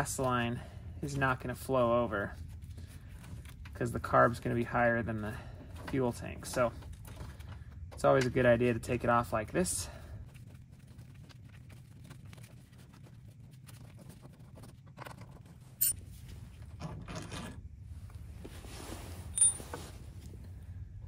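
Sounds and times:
rustling of handling: 1.1 - 5.0, 10.2 - 17.1, 17.8 - 20.6
ringing metal clink: 19.4 - 19.7.

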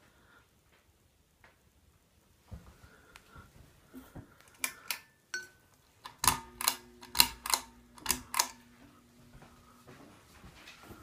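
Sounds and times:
ceiling fan motor hum: 2.5 - 11.0
fan clicks: 6.0 - 8.9.

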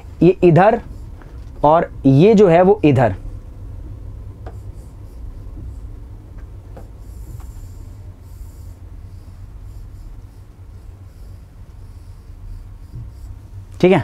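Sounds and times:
steady low hum: 0.0 - 14.0
stylus scratchy strokes: 7.0 - 14.0.

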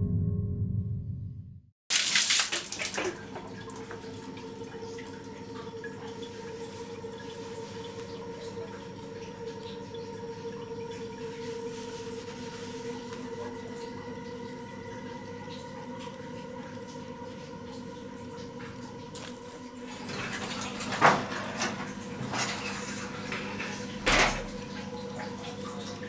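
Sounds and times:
low hum: 0.0 - 1.7
water splashing: 1.9 - 7.8
water trickling and dripping: 1.9 - 21.0, 21.6 - 26.0.

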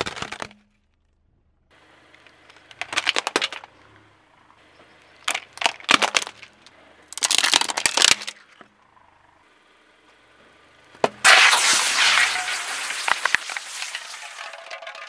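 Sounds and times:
plastic toys cracking under tyre: 0.0 - 1.2, 2.1 - 3.8, 5.1 - 8.7.

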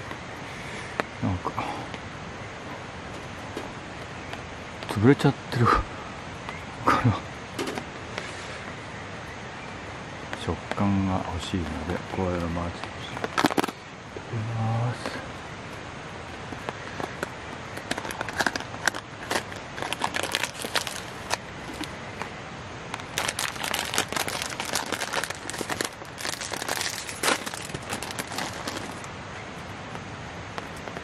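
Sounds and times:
plastic wrapper crinkling: 13.2 - 13.8, 17.8 - 22.3, 23.0 - 29.1.

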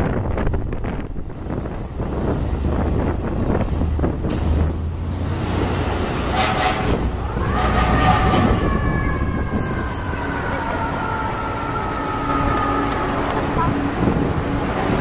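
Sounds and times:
fire truck engine rumble: 0.0 - 15.0
horn blasts: 6.2 - 8.9
siren rising and falling: 7.2 - 13.5.

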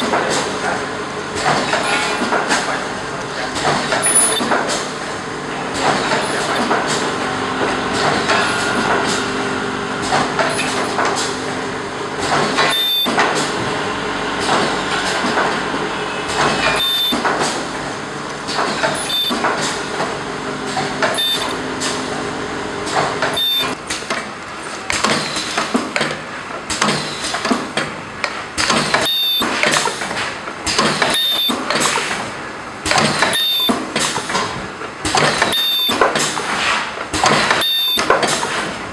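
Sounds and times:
machine humming: 0.0 - 23.8.

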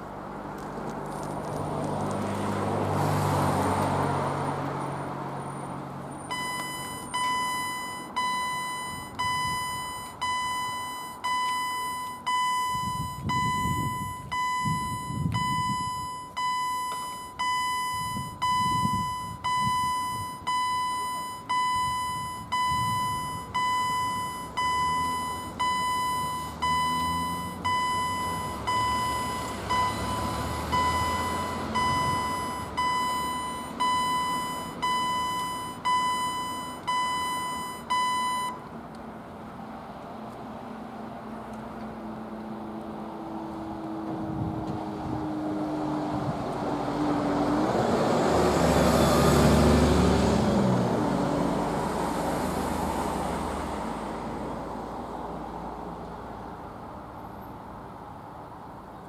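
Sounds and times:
motor vehicle passing: 0.4 - 6.2, 40.6 - 54.9
level crossing warning bell: 6.3 - 38.6.

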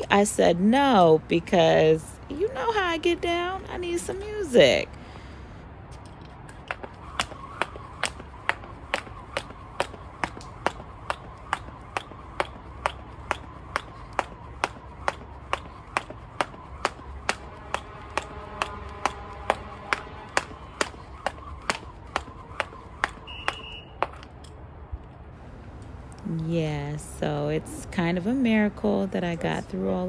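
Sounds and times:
jump rope slapping ground: 6.4 - 24.4.

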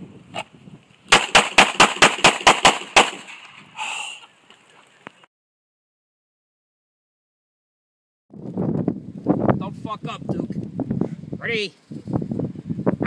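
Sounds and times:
handgun shots: 1.1 - 3.5.

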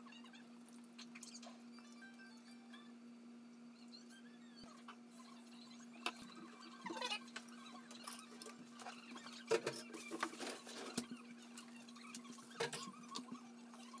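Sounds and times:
dishes scraping and rustling: 6.0 - 14.0.

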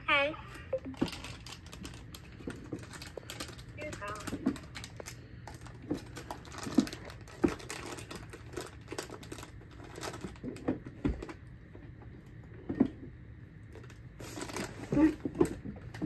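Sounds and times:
plastic item clicking and rustling: 0.9 - 11.4.

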